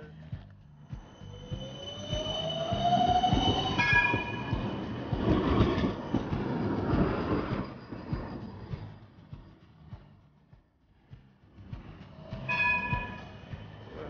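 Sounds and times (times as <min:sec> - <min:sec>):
tram wheels rumbling on rails: 0:00.0 - 0:14.0
tram whine: 0:00.0 - 0:14.0
high squeal: 0:00.8 - 0:10.0, 0:12.0 - 0:14.0.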